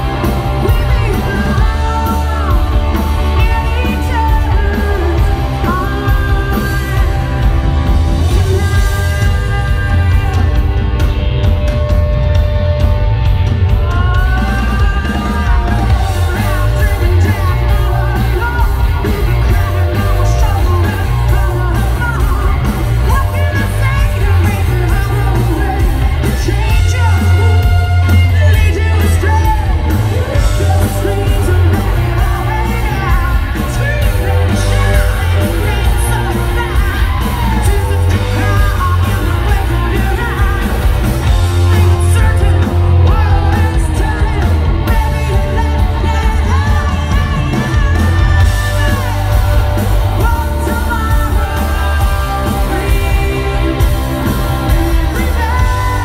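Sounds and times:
woman singing and belting: 0.0 - 11.1, 13.7 - 56.0
live rock band: 0.0 - 56.0.

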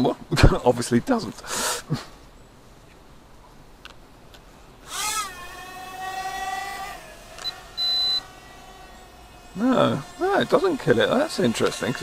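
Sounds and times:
toy drone motors whining: 4.8 - 12.0.

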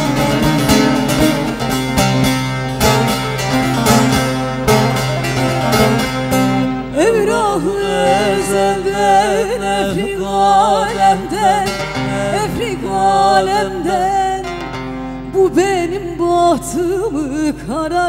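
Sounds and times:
plucked lute accompaniment: 0.0 - 18.0
woman singing folk song: 6.9 - 18.0.

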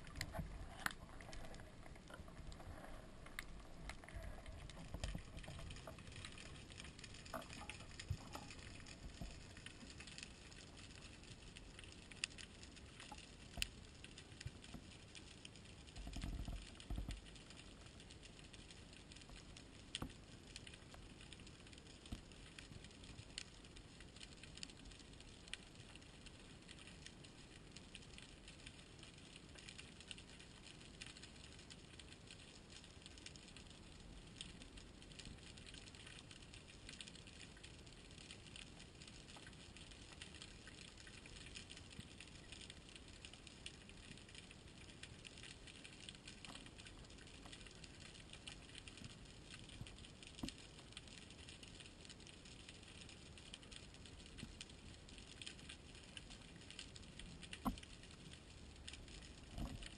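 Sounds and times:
faint underwater hiss: 0.0 - 14.4
sharp clicks and crackles: 0.0 - 59.9.

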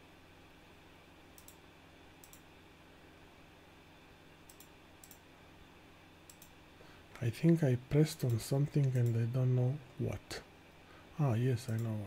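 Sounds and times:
computer mouse clicks: 1.4 - 1.6, 2.2 - 2.5, 4.5 - 5.2, 6.3 - 6.6, 8.2 - 9.2, 11.7 - 12.0.

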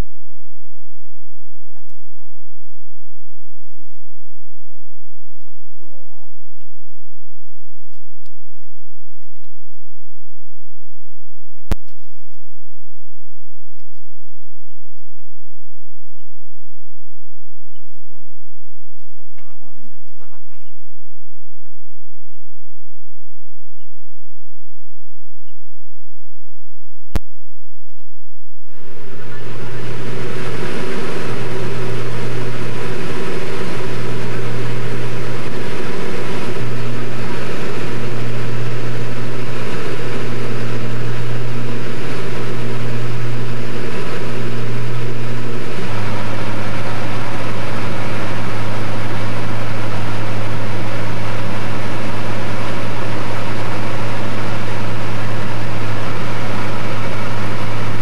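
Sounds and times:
light aircraft engine drone in cabin: 0.0 - 10.5, 28.6 - 58.0.

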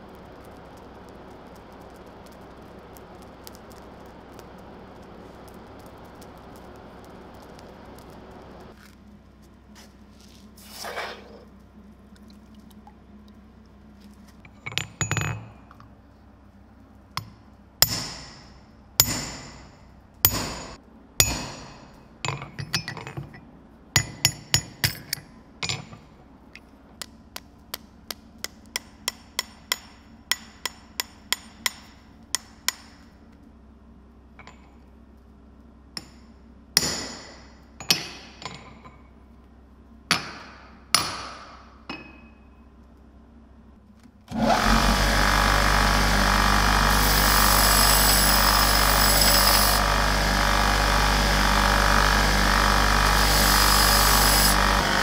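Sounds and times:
hammer striking steel on anvil: 17.2 - 23.0, 24.0 - 25.2, 27.7 - 33.1, 36.0 - 38.7, 40.1 - 42.5.

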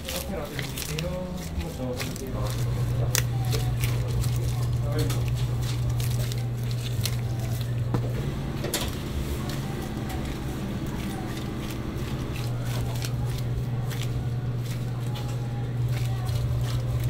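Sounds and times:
faint voices: 0.0 - 17.0
low hum: 0.0 - 17.0.

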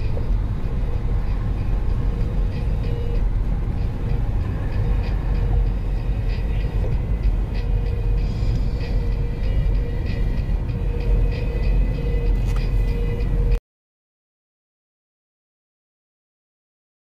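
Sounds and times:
car road and engine rumble: 0.0 - 13.6.

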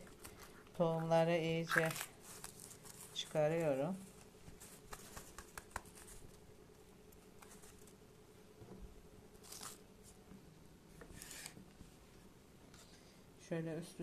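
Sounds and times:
faint steady hum: 0.0 - 14.0
plastic bag rustling and crackling: 1.6 - 6.4.

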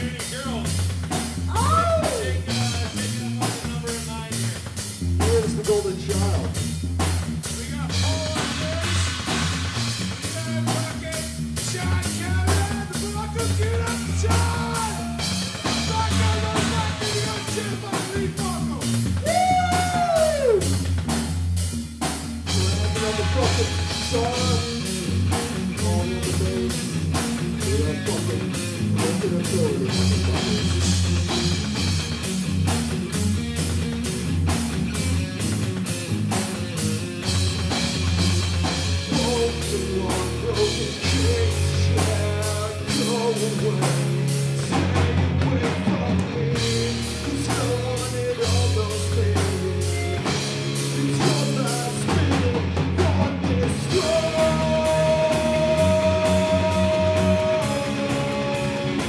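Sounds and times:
drum kit with cymbals: 0.0 - 59.0
electric guitar: 0.0 - 59.0
person singing through pa: 1.5 - 4.5, 10.2 - 20.8, 22.5 - 30.9, 39.0 - 59.0.

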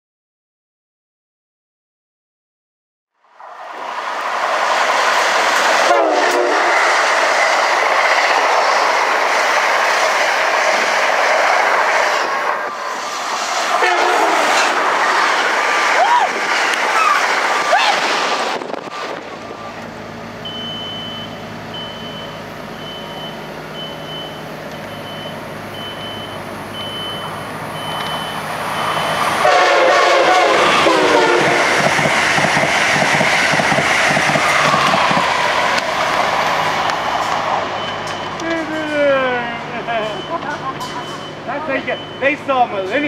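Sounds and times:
high-speed train rushing through: 3.2 - 43.0
train passing: 3.2 - 43.0
train horn: 5.8 - 6.9, 13.8 - 14.8, 29.4 - 31.8
high repeating beep: 20.5 - 29.2, 41.0 - 42.4.

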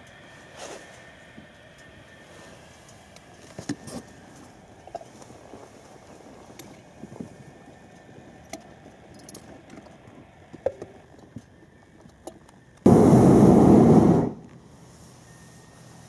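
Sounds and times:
propane burner blast: 12.8 - 15.1.

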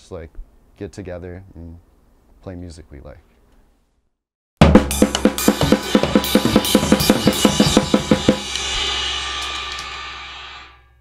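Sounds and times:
fast drum hits: 4.6 - 10.8
crash cymbal ringing: 5.3 - 11.0.

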